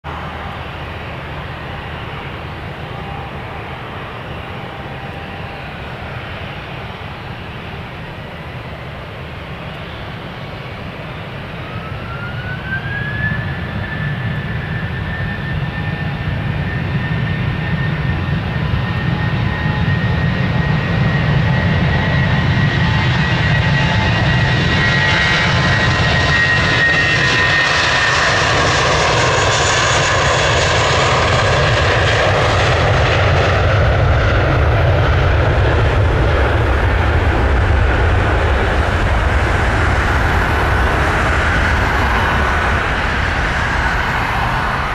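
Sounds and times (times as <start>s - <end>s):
jet engines whining: 0.0s - 44.9s
deep engine rumble: 27.4s - 44.9s.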